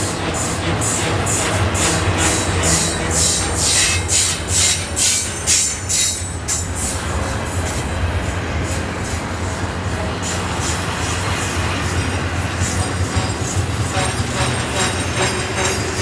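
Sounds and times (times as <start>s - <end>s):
freight train rumbling by: 0.0s - 16.0s.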